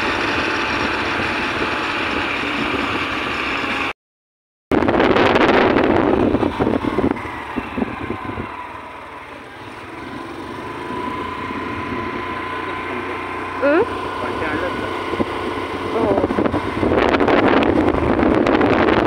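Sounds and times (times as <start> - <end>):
road and engine noise: 0.0 - 4.0, 4.7 - 19.0
wind buffeting microphone: 4.7 - 8.9, 14.7 - 19.0.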